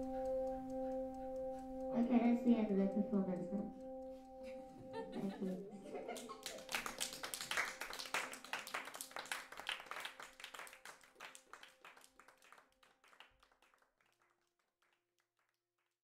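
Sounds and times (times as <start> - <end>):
held musical notes: 0.0 - 9.6
applause: 6.2 - 16.0.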